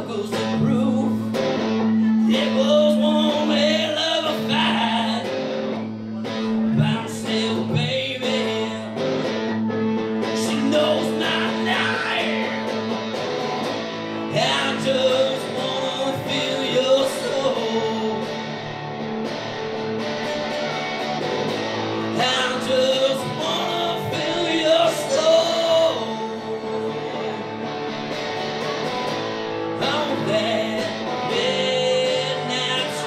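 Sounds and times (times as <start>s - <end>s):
man singing into microphone: 0.0s - 5.4s, 6.4s - 9.0s, 10.3s - 12.7s, 14.2s - 18.4s, 22.0s - 27.6s, 29.8s - 33.0s
acoustic guitar strumming: 0.0s - 33.0s.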